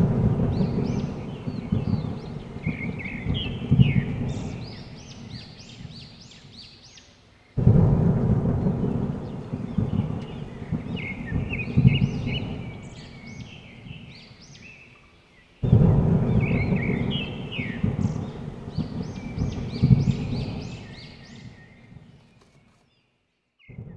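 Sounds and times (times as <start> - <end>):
low rumble: 0.0 - 6.4, 7.6 - 14.2.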